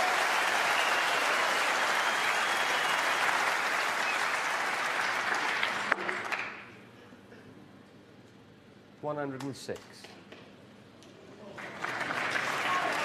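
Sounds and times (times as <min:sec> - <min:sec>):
crowd applauding: 0:00.0 - 0:06.8, 0:11.4 - 0:13.0.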